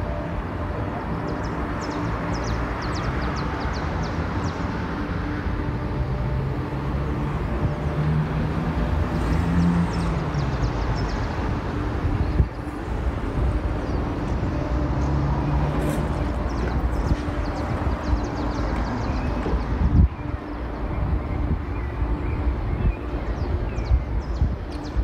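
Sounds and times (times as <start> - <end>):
road traffic rumble: 0.0 - 25.0
vehicle engine hum: 0.0 - 25.0.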